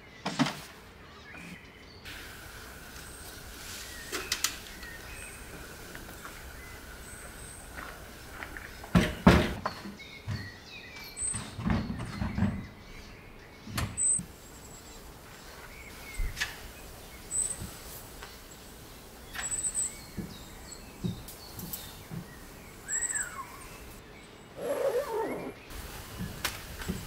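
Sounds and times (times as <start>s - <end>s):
bird chirps: 19.2s - 26.3s.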